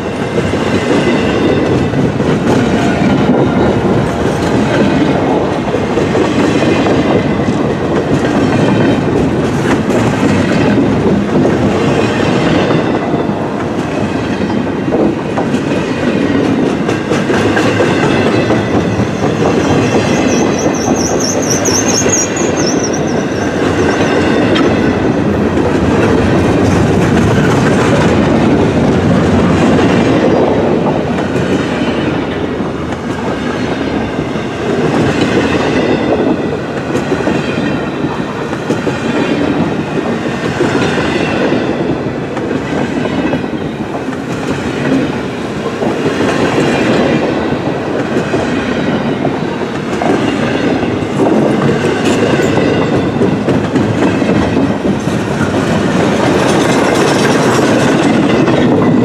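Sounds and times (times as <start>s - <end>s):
freight train rolling past: 0.0s - 59.0s
wheels clickety-clack: 0.0s - 59.0s
high wavering wheel squeal: 19.1s - 24.8s.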